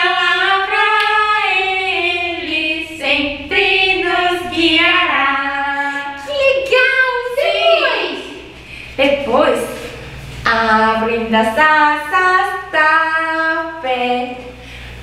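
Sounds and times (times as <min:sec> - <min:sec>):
woman singing unaccompanied: 0:10.4 - 0:14.5.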